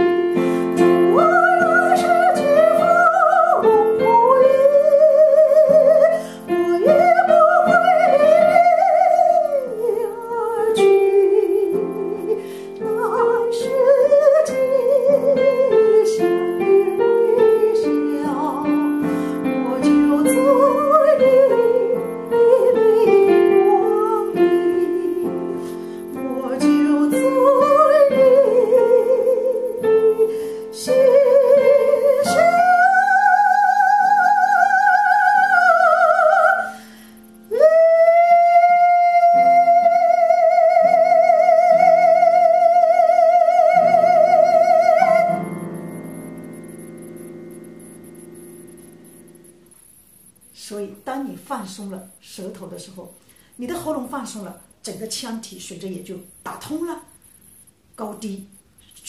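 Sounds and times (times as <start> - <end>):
woman singing pop ballad: 0.6 - 36.9.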